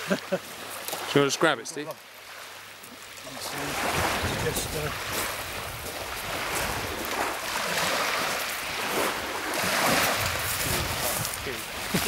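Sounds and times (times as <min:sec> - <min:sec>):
waves washing over shingle: 0:00.0 - 0:12.0.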